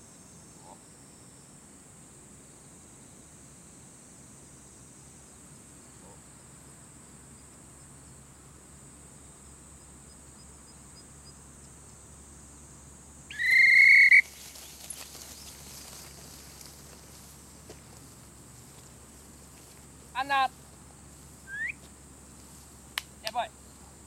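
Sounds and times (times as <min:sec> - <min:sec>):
high buzzing of insects: 0:00.0 - 0:24.0
loud whistle blast: 0:13.3 - 0:14.3.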